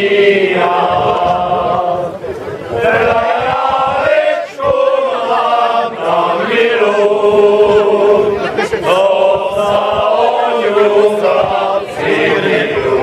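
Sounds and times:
men singing in harmony: 0.0 - 13.0.

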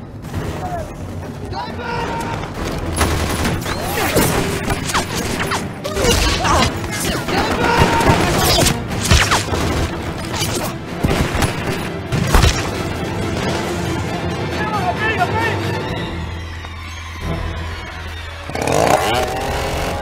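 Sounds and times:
music: 0.0 - 20.0
sharp impacts: 2.5 - 13.7.

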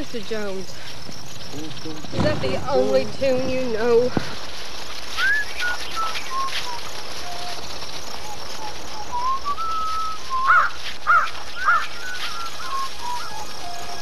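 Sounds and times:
whistled chirps: 5.0 - 14.0
person whistling a slow tune: 5.2 - 10.5, 12.0 - 14.0.

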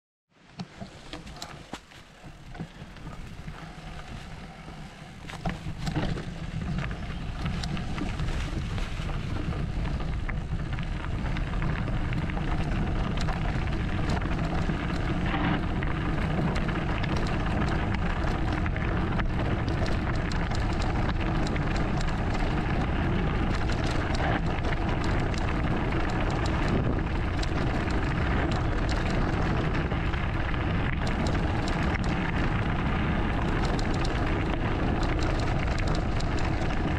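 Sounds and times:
bike rattling: 0.7 - 36.9
tyres crackling over gravel: 0.9 - 36.9
wind on microphone: 1.0 - 36.9.

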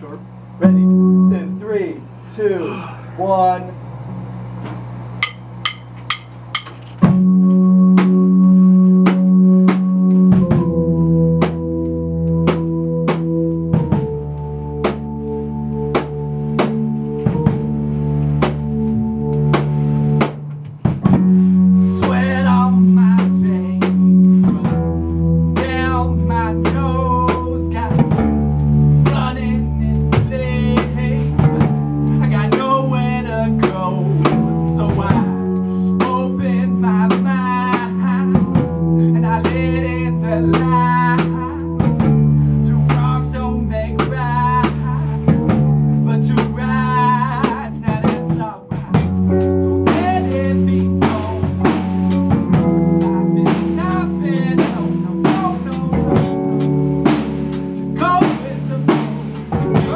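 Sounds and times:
drum kit: 3.2 - 59.9
electric guitar: 7.0 - 59.9
man singing into a microphone: 21.8 - 24.8, 25.5 - 28.2, 29.0 - 45.3, 46.0 - 49.0, 49.6 - 51.9, 52.6 - 56.3, 57.9 - 59.9.

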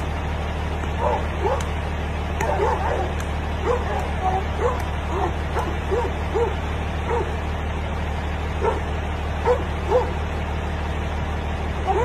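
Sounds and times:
steady low hum: 0.0 - 12.0
dog barking: 1.0 - 1.7, 2.4 - 7.4, 8.6 - 10.2.

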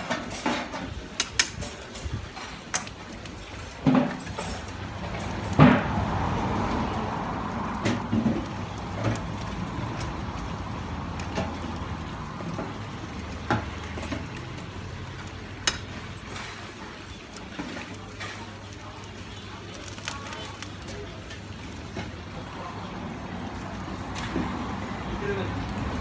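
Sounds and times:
poker knocking and scraping coals: 0.0 - 6.3.

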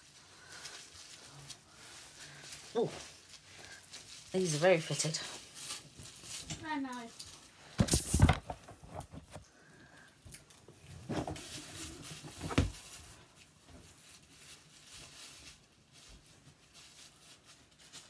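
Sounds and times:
faint rustling and shuffling: 0.0 - 18.0.

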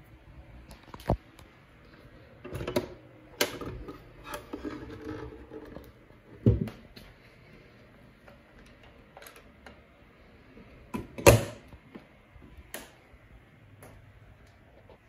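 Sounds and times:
cabinet clicks and creaks: 2.4 - 5.7.

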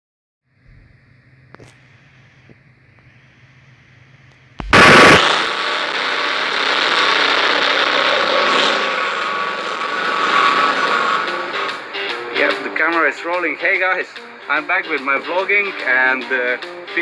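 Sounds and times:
loud sudden blast: 4.6 - 12.7
motorcycle engine revving: 4.7 - 12.9.

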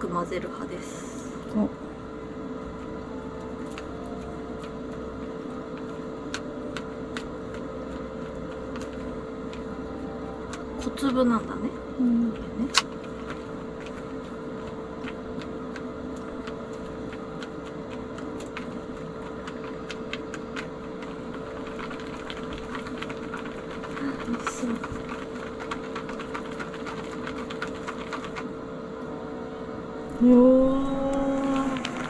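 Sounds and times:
steady low hum: 0.0 - 32.0
person humming: 30.2 - 32.0.

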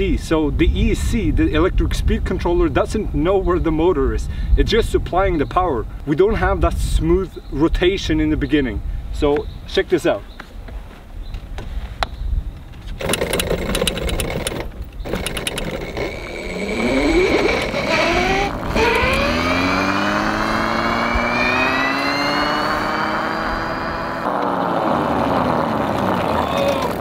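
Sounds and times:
electric motor stuttering clicks: 13.0 - 24.8
electric motor whine rising: 13.0 - 27.0.

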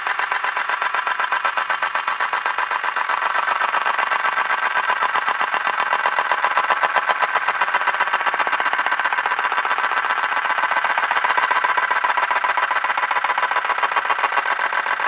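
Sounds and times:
whirring rotation pulses: 0.0 - 15.0.

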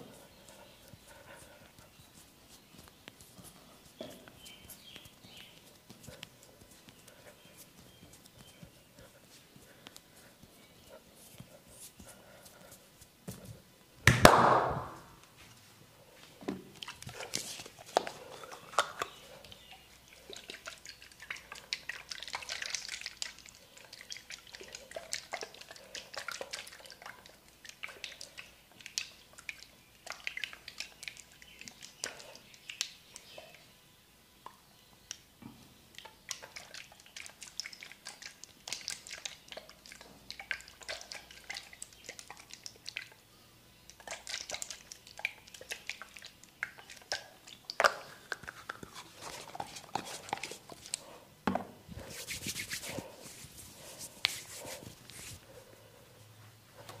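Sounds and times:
hands rubbing skin: 48.4 - 51.1, 51.9 - 55.6.

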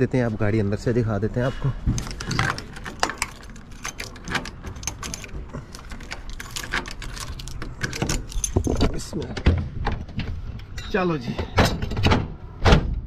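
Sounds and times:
door lock clicking and rattling: 1.8 - 10.4
keys jangling: 1.9 - 9.0.

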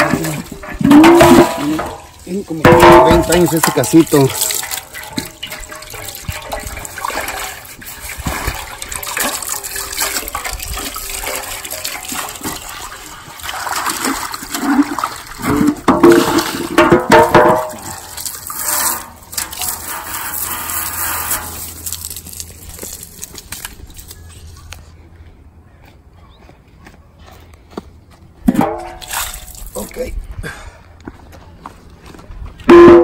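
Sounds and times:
water pouring into a metal pot: 0.0 - 22.4
water splashing: 0.0 - 23.4.

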